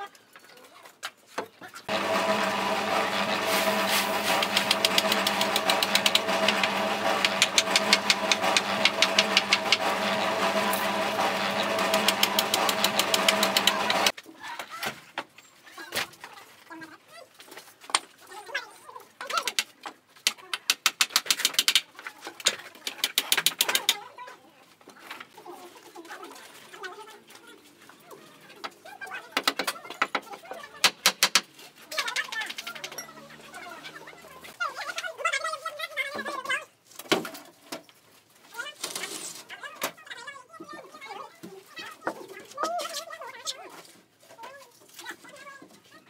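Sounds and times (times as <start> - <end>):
rapid clicks: 4.2 - 10.1
machine motor ticking: 4.2 - 14.1.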